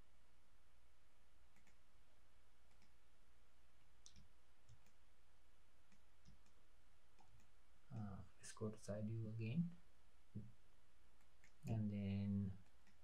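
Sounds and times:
low steady hum: 0.0s - 13.0s
mouse and keyboard clicks: 1.6s - 1.8s, 2.7s - 2.9s, 4.0s - 5.0s.

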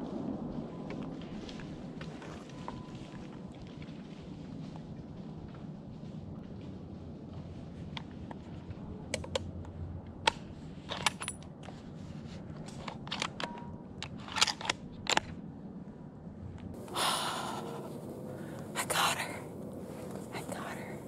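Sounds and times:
rustle: 0.0s - 15.3s
gear handling clicks and knocks: 9.1s - 11.8s, 12.5s - 15.4s.

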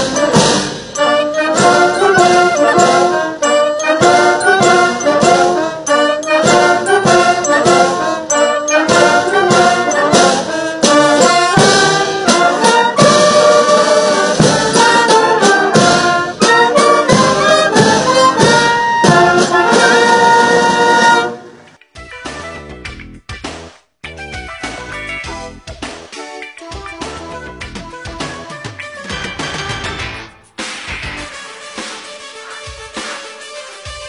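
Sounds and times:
military brass and drum band: 0.0s - 21.6s, 31.0s - 34.0s.

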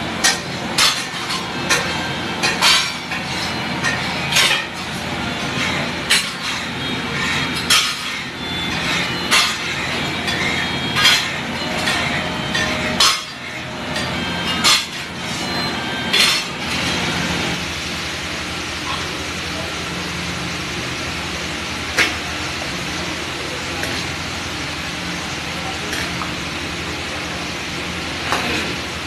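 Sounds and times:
steady background noise: 0.0s - 29.0s
metal tool clanking on iron pan: 0.2s - 4.8s, 7.2s - 8.2s, 10.3s - 13.5s.

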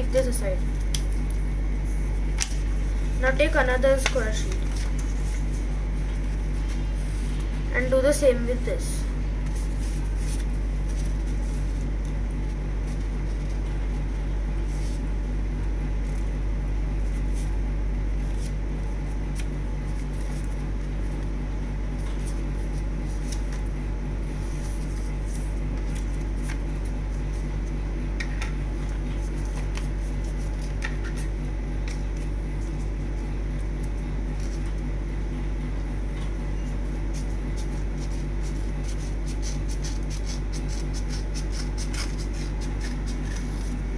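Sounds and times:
low electrical hum: 0.0s - 43.9s
paper rustling and crinkling: 3.9s - 7.5s, 9.4s - 13.8s, 22.0s - 23.7s, 24.3s - 27.8s, 29.0s - 32.8s
scissors snipping paper: 37.1s - 43.8s.

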